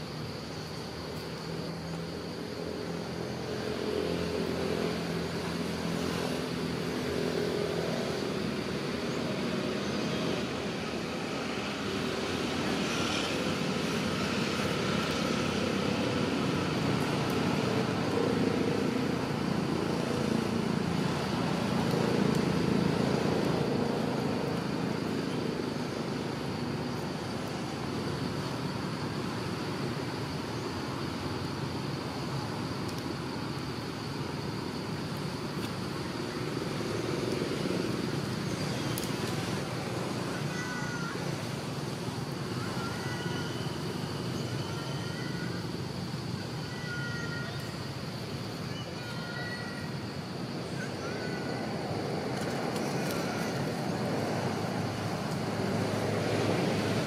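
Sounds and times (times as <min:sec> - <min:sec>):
vehicle engine: 0:01.5 - 0:32.6.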